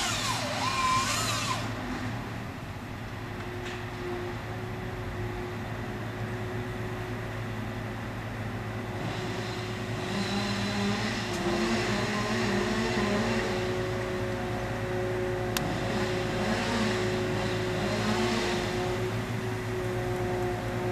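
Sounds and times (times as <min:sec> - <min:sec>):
saw rushing and whining: 0:00.0 - 0:02.4, 0:08.9 - 0:20.9
engine and hydraulic hum: 0:00.0 - 0:20.9.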